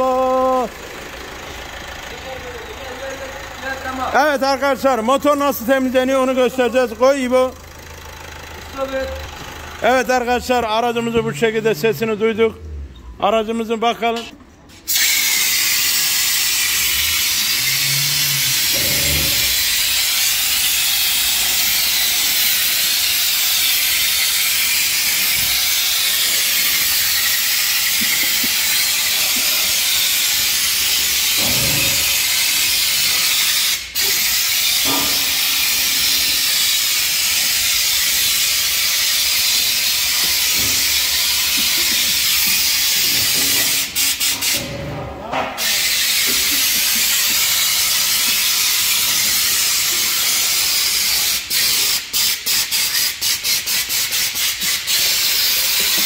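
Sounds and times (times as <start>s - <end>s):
pressure sprayer hissing: 14.8s - 44.7s, 45.6s - 56.0s.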